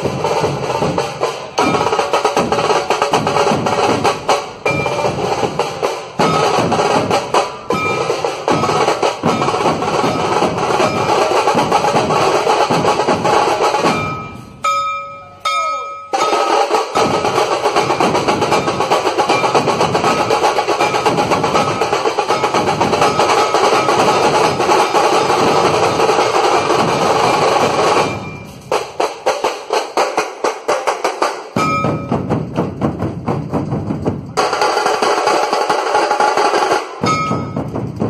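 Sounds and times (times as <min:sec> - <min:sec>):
drums beaten in fast rhythm: 0:00.0 - 0:38.0
held tone: 0:04.6 - 0:05.2, 0:07.4 - 0:11.4, 0:13.8 - 0:17.2, 0:27.1 - 0:28.7.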